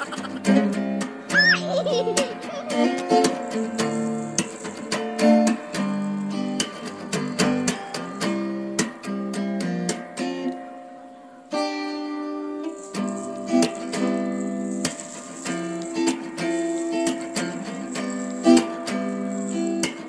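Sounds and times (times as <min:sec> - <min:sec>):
acoustic guitar melody: 0:00.0 - 0:20.0.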